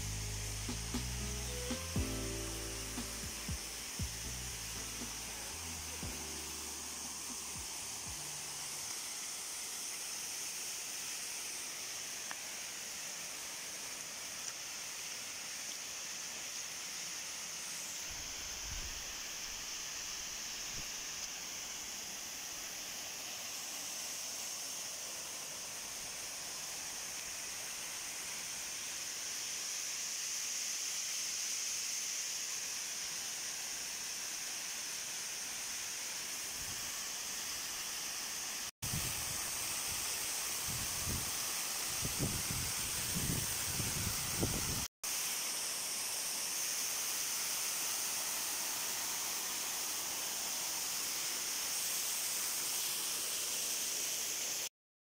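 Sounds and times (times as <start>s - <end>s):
waterfall rushing: 0.0s - 12.2s.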